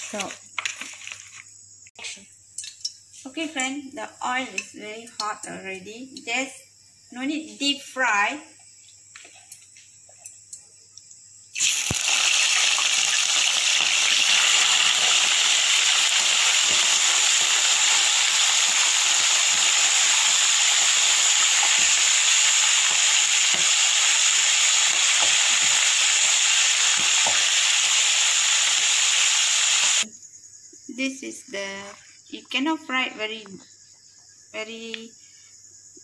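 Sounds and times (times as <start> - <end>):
chicken sizzling in hot oil: 11.5 - 30.1.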